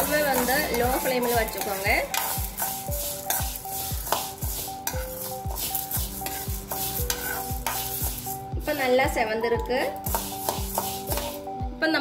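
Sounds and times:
spoon stirring and scraping pan: 0.0 - 9.0, 9.6 - 11.5
background music with thumping beat: 0.0 - 11.8.

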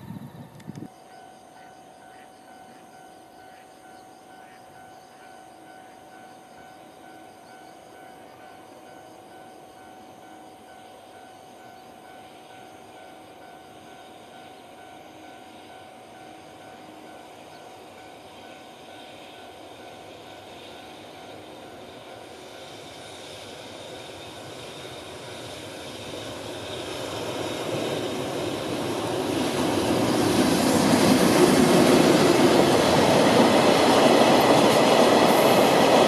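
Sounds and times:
freight train rail noise: 0.0 - 36.0
level crossing warning bell: 0.9 - 22.3.

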